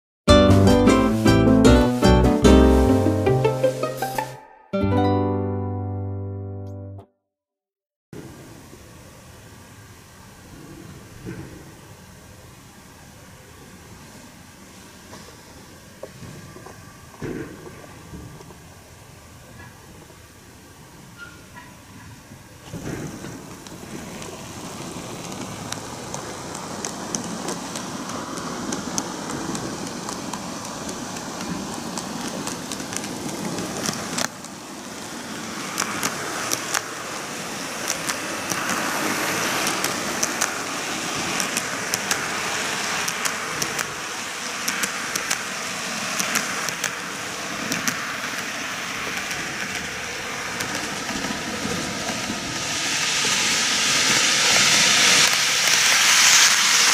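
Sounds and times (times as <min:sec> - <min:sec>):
model train rolling and motor hum: 0:08.2 - 0:56.9
wheels clicking over rail joints: 0:14.9 - 0:56.9.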